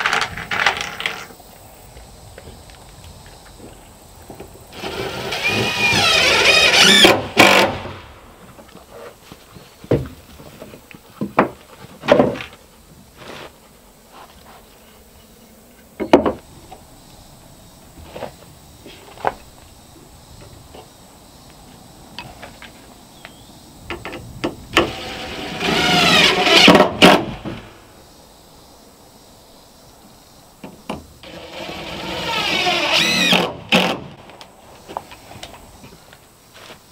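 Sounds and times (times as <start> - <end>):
cordless drill whirring: 24.9 - 26.8, 31.3 - 33.9.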